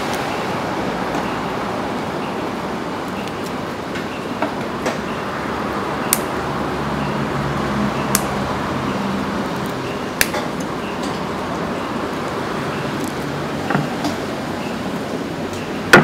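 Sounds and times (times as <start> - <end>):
sharp clicks: 8.1 - 8.4.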